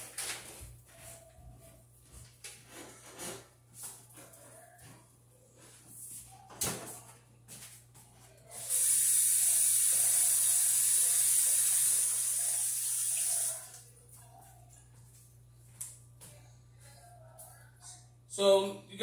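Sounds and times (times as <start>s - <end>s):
faucet running into sink: 8.6s - 13.8s.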